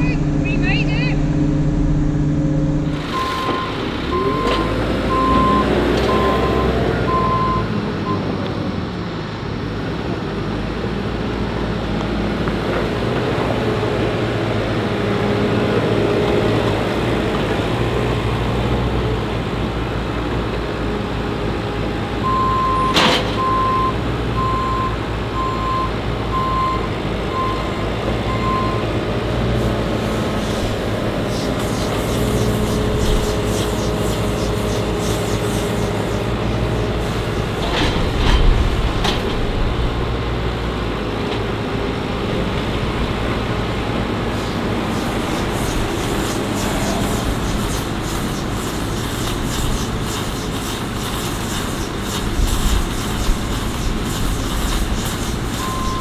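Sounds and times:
diesel machinery running: 0.0s - 56.0s
reversing alarm beeping: 2.9s - 8.3s, 22.2s - 28.9s, 55.5s - 56.0s.

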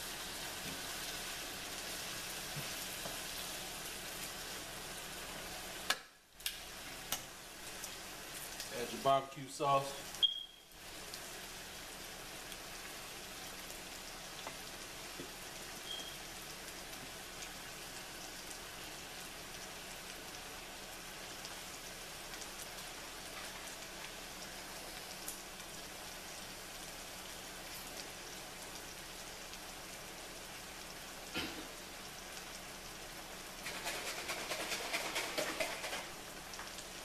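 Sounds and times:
meat and vegetables sizzling in skillet: 0.0s - 37.0s.

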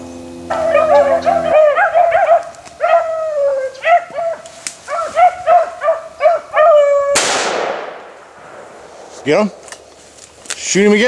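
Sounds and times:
hounds baying and barking: 0.5s - 7.2s
shotgun blast echoing: 7.2s - 10.0s.

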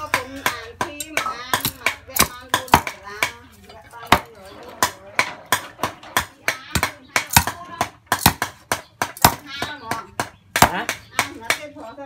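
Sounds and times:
cleaver chopping chicken: 6.2s - 11.6s.

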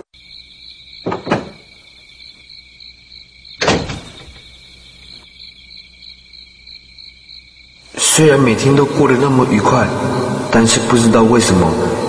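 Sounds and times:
crickets chirping: 0.0s - 12.0s
loud thud: 3.6s - 4.5s.

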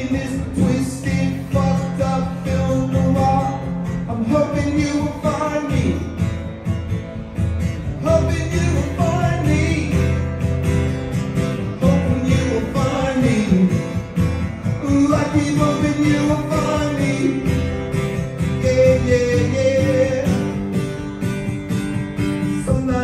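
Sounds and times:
man singing: 0.0s - 6.2s, 7.9s - 10.2s, 11.6s - 20.8s, 22.4s - 23.0s
acoustic guitar strumming: 0.0s - 23.0s.

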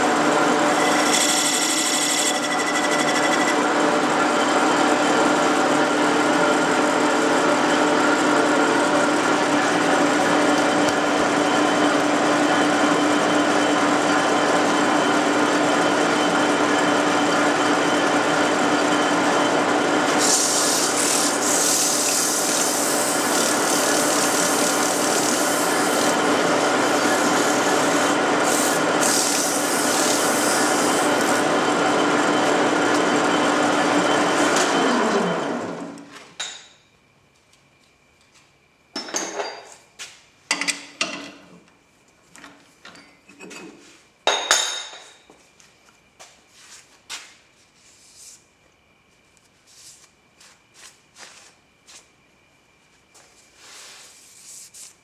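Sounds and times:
metal lathe humming: 0.0s - 36.0s.

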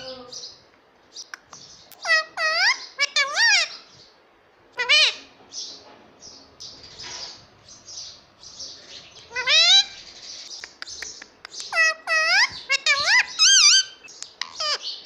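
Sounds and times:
parrot calling: 1.2s - 3.9s, 4.7s - 5.4s, 9.2s - 15.0s
parrot raspy chirps: 1.2s - 3.9s, 9.3s - 14.9s.

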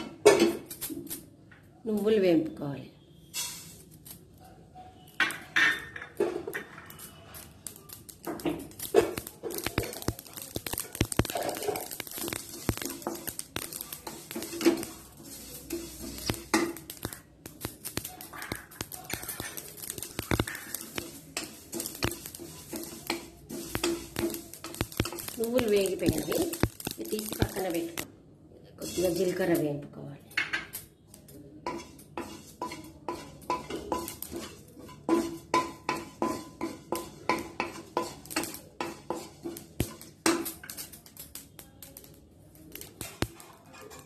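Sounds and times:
seeds rattling in pan: 0.5s - 2.2s, 3.3s - 4.4s, 5.1s - 28.1s, 28.8s - 29.6s, 30.7s - 44.0s
wooden spatula scraping pan: 8.3s - 17.2s, 18.2s - 27.5s, 31.6s - 40.5s.

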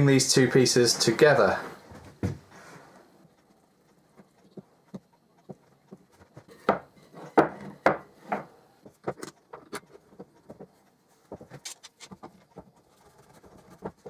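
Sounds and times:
wooden boards knocking: 6.6s - 9.2s.

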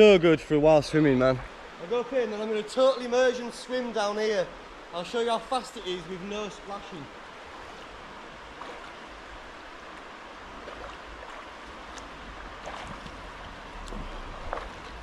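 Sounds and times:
river rushing: 0.0s - 15.0s
faint short splashes: 8.5s - 9.0s, 10.6s - 15.0s.

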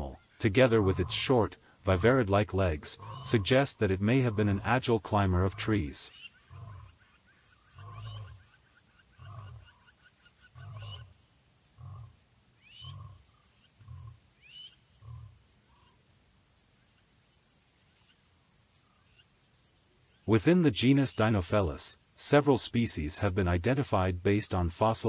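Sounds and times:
big cat deep grunts: 0.0s - 7.0s, 7.7s - 8.5s, 9.2s - 9.8s, 10.5s - 11.2s, 11.8s - 12.2s, 12.8s - 14.2s
crickets chirping: 0.0s - 25.0s.

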